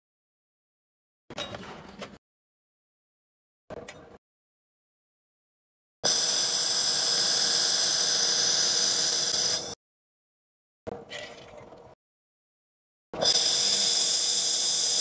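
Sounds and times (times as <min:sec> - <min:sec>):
laser welding gun hissing: 0:06.1 - 0:09.8, 0:13.2 - 0:15.0.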